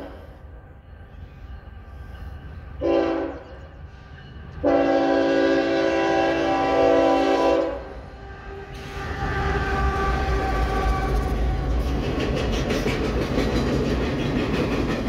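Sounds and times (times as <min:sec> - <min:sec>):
locomotive engine and wheels rumbling: 0:00.0 - 0:15.0
locomotive air horn blasts: 0:02.8 - 0:03.4, 0:04.6 - 0:11.3.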